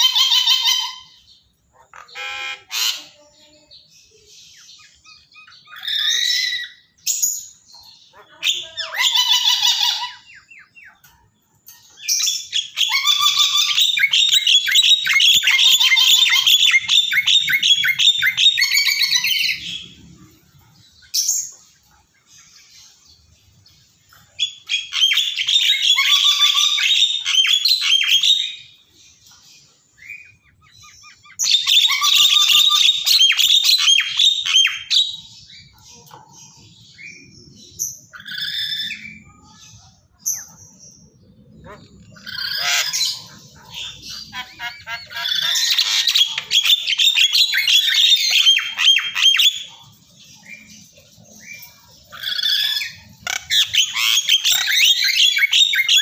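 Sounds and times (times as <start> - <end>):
parrot harsh chatter: 0.0 - 3.4, 4.7 - 11.0, 11.9 - 20.1, 24.1 - 28.8, 30.0 - 36.1, 41.5 - 50.0, 50.8 - 56.0.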